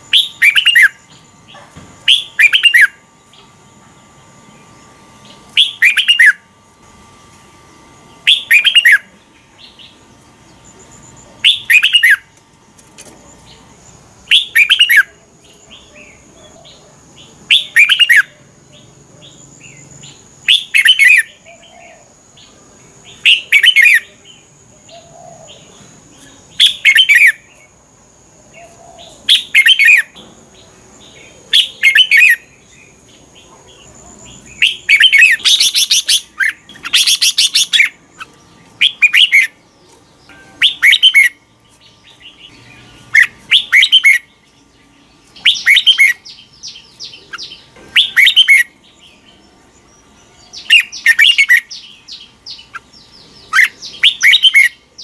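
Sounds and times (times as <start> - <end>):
bird singing whistled phrases: 0.1 - 1.0, 2.1 - 3.0, 5.6 - 6.4, 8.2 - 9.1, 11.4 - 12.3, 14.3 - 15.1, 17.5 - 18.4, 20.5 - 22.0, 23.1 - 24.1, 29.2 - 30.2, 38.8 - 39.6, 40.3 - 41.4, 43.1 - 44.3, 45.4 - 48.8, 53.4 - 54.8.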